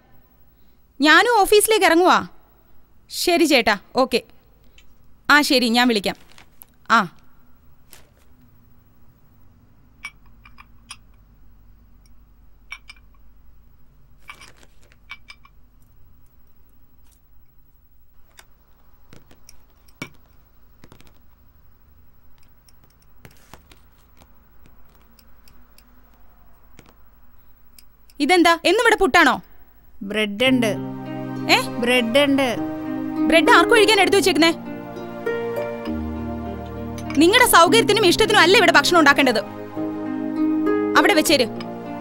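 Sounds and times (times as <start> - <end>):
low room hum: 0.0 - 42.0
small objects clicking and knocking: 14.2 - 15.9, 18.2 - 21.5, 22.3 - 27.0.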